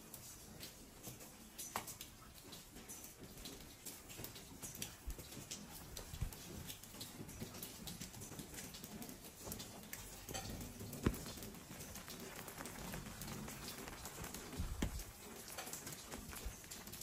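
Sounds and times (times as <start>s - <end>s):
light rain pattering: 0.0s - 17.0s
footsteps on wet paving: 10.3s - 17.0s
sharp tap: 14.6s - 15.0s.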